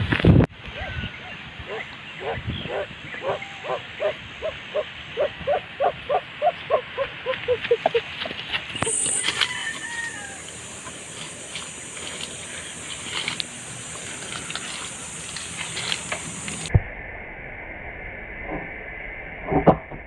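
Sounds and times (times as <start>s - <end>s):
faint drawn-out animal call: 0.8s - 8.0s
short pitched animal calls: 1.7s - 8.0s
crackles and clicks: 11.2s - 20.0s.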